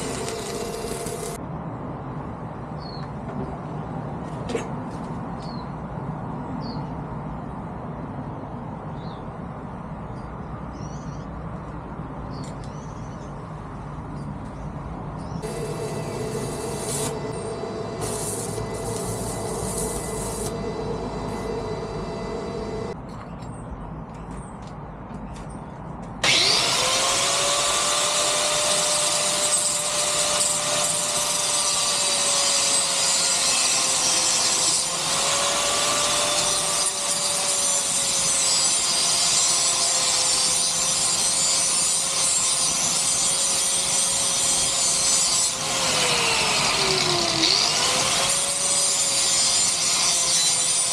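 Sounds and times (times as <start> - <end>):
angle grinder grinding steel: 0.0 - 1.4, 15.4 - 23.0, 26.2 - 50.9
arc welder crackling and buzzing: 0.0 - 1.4, 15.4 - 23.0, 26.2 - 50.9.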